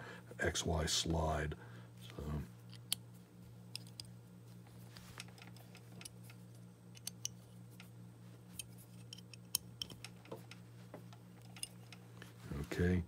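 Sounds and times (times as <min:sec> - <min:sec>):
faint steady hum: 0:00.0 - 0:13.0
metallic clicks and taps: 0:05.2 - 0:07.9, 0:08.6 - 0:12.0.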